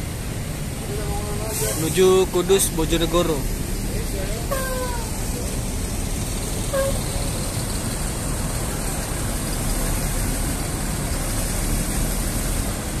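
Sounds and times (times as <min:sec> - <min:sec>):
diesel bus engine rumbling: 0:00.0 - 0:13.0
short high tone: 0:04.5 - 0:05.2.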